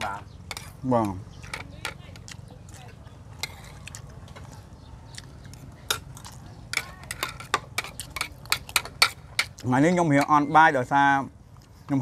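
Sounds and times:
cutlery clicking on plates: 0:05.8 - 0:09.6.

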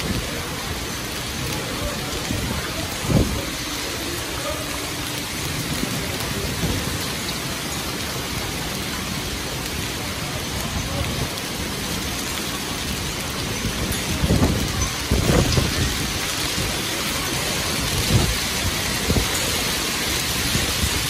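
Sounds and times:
wind gusts buffeting microphone: 0:00.0 - 0:04.2, 0:12.9 - 0:21.0
heavy rain pouring: 0:00.0 - 0:21.0.

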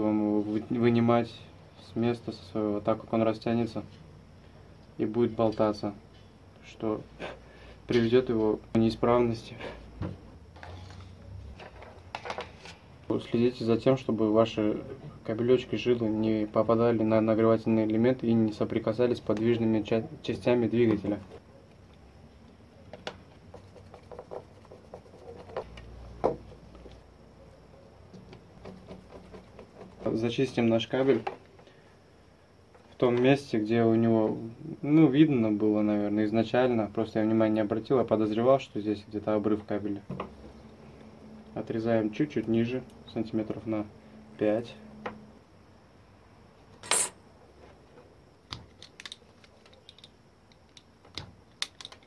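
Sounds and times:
plastic parts clicking and tapping: 0:48.5 - 0:52.0.

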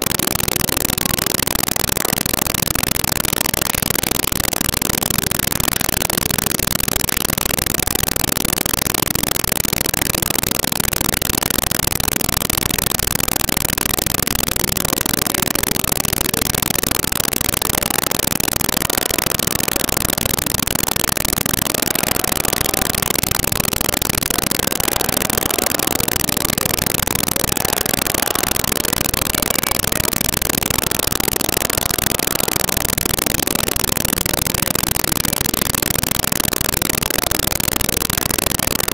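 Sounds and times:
loud static hiss: 0:12.8 - 0:38.5.

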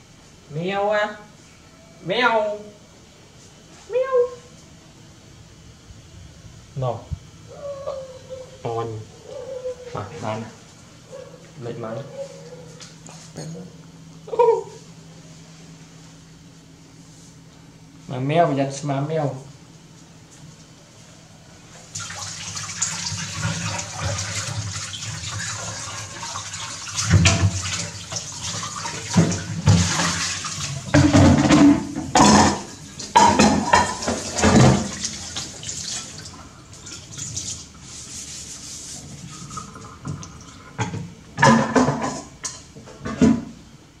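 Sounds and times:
dishes clinking: 0:31.0 - 0:34.8.

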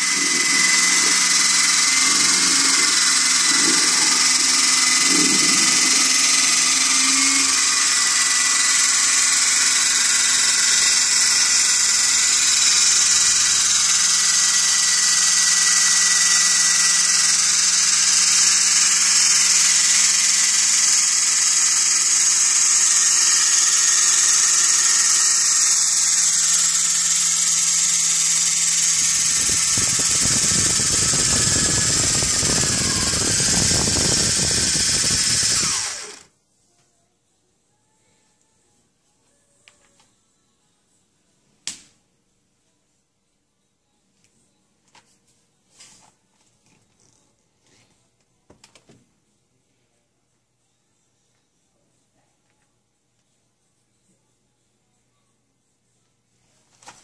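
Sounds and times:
small electric motors whirring: 0:00.0 - 0:36.3.

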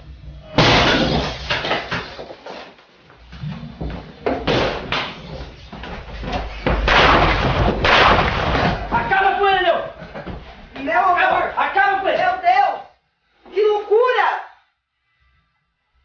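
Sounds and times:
loud crash: 0:00.4 - 0:02.2, 0:06.8 - 0:09.0
noisy bangs and knocks: 0:00.5 - 0:02.3, 0:03.8 - 0:09.1.

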